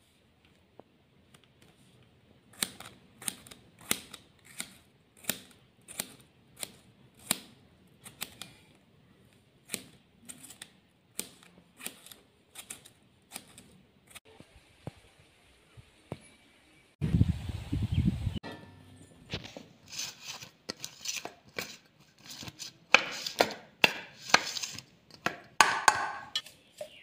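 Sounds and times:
knife cutting tomato: 0:09.6 - 0:14.2, 0:20.7 - 0:25.5.

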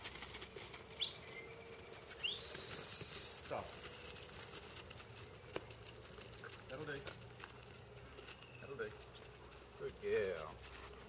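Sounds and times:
long high whistle: 0:02.2 - 0:03.4
short rising whistle chirp: 0:02.2 - 0:03.4.

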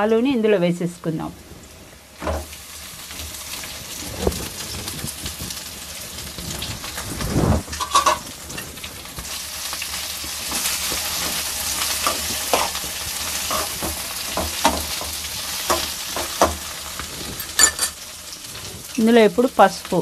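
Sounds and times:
potatoes sizzling in oil: 0:00.0 - 0:20.0
metal spoon scraping a pan: 0:07.7 - 0:08.7, 0:10.4 - 0:18.0.

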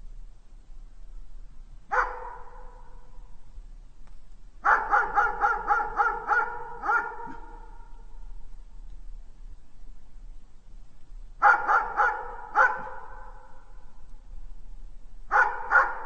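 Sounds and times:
dog barking with echo: 0:01.9 - 0:03.1, 0:04.6 - 0:08.0, 0:11.4 - 0:13.7, 0:15.3 - 0:16.0.

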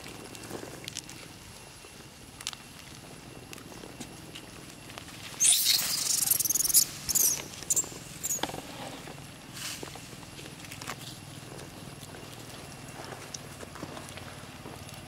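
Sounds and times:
macaques screeching: 0:05.4 - 0:08.6.

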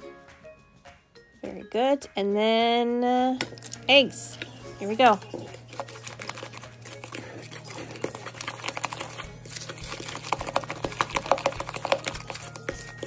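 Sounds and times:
wooden spoon scraping a bowl: 0:04.3 - 0:13.0.

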